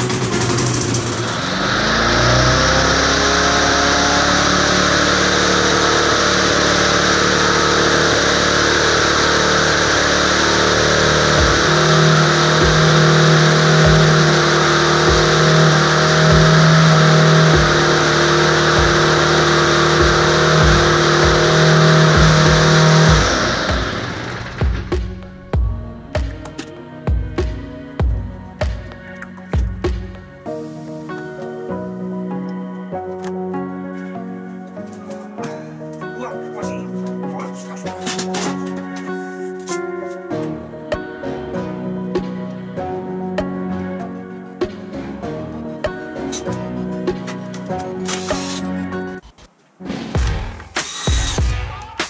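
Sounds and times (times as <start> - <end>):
uneven low pulses: 0.0 - 31.3
lawn mower engine running: 0.0 - 31.6, 36.0 - 43.9.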